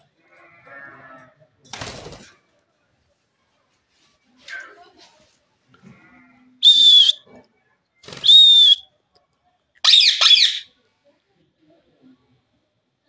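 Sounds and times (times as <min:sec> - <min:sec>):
parakeet harsh chattering: 0:09.8 - 0:10.6
parakeet screeching: 0:09.8 - 0:10.6.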